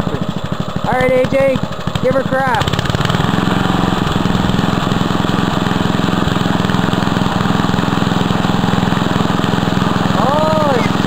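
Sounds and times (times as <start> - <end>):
lawn tractor engine under load: 0.0 - 11.0.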